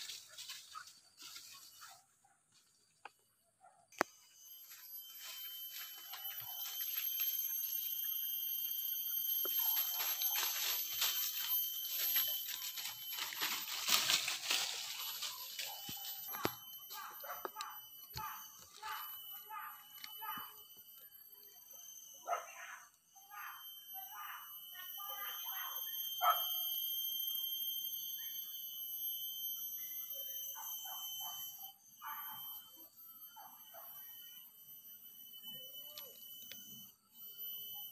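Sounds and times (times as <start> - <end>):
rustling ferns and dry leaves: 0.0 - 3.0, 4.6 - 8.8, 9.5 - 17.1
insects droning: 0.0 - 37.9
thin steady high tones: 0.0 - 37.9.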